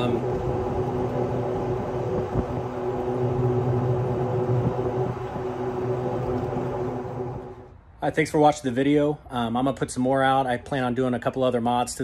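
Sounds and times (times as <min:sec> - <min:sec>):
electric golf cart drive hum: 0:00.0 - 0:07.7.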